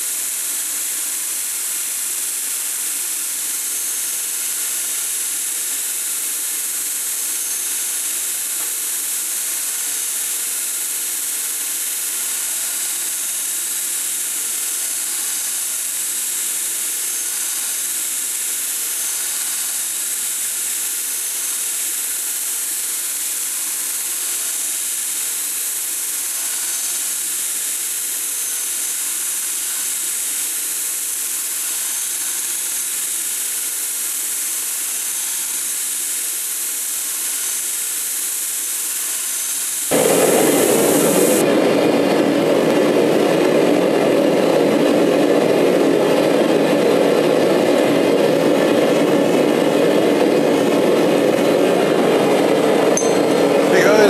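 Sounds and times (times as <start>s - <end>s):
belt grinder grinding steel: 11.6s - 21.6s.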